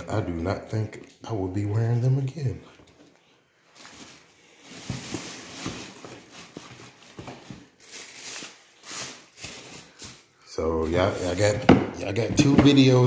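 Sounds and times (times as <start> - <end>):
rustling and handling noise: 2.7 - 13.0.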